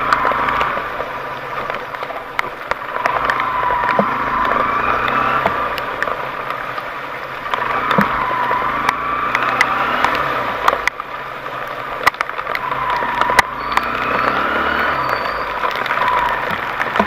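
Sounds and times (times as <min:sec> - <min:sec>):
off-road vehicle engine revving: 0:00.0 - 0:01.1, 0:03.0 - 0:06.8, 0:07.4 - 0:10.9, 0:12.1 - 0:17.0
sharp clicks and knocks: 0:01.5 - 0:08.2, 0:11.9 - 0:14.3.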